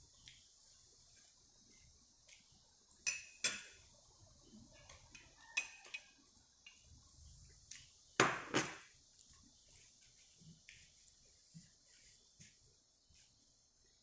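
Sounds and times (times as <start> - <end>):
spoon clinking against glass bowl: 3.0 - 3.7, 5.1 - 6.2.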